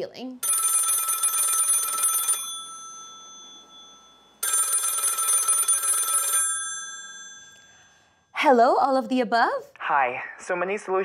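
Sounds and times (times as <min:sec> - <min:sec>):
telephone bell ringing: 0:00.4 - 0:08.2.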